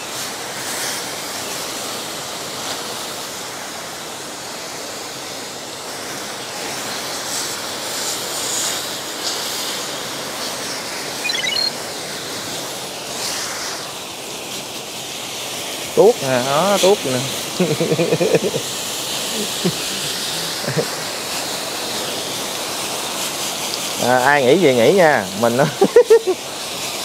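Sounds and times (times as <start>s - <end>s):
water jet hissing: 0.0s - 27.0s
brief high chirp: 11.2s - 11.8s.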